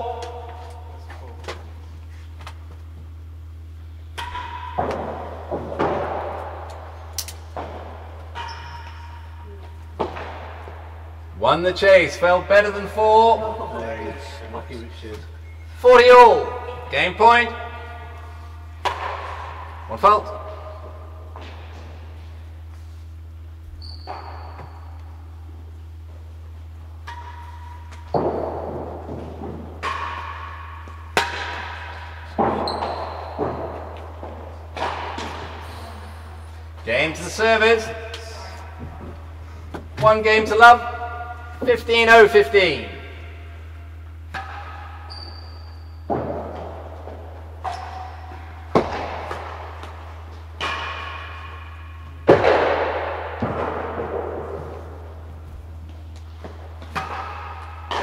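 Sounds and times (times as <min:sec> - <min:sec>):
steady low hum: 0:00.0 - 0:58.0
ball rebounding off walls: 0:04.1 - 0:11.3, 0:16.3 - 0:22.4, 0:27.0 - 0:35.7, 0:43.0 - 0:58.0
tennis ball struck by rackets: 0:27.0 - 0:35.6, 0:46.1 - 0:54.9.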